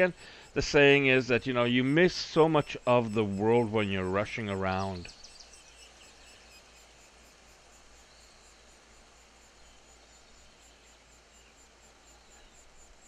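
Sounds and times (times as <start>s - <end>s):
woodpecker nestlings chirping: 0.0s - 7.1s
quiet outdoor hiss: 0.0s - 13.0s.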